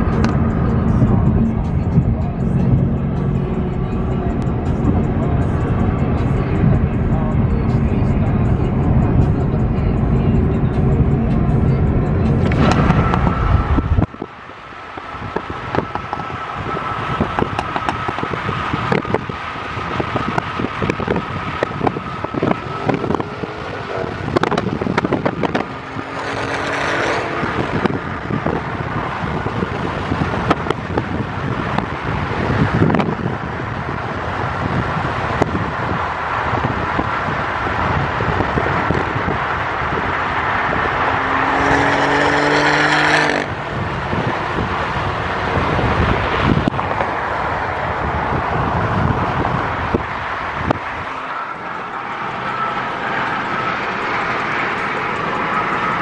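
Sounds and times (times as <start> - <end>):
deep low rumble: 0.0 - 14.3
tyre road and wind noise: 0.0 - 56.0.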